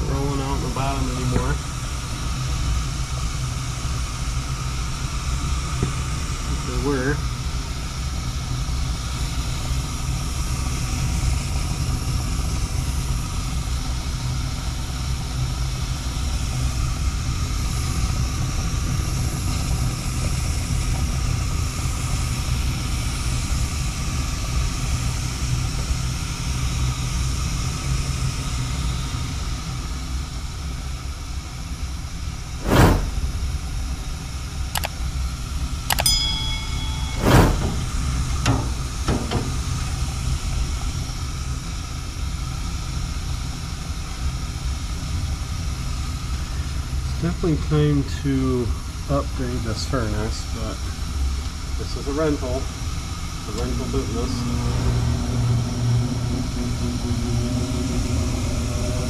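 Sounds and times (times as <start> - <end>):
gas furnace rumbling: 0.0 - 59.0
sharp metallic knocks: 35.9 - 39.7.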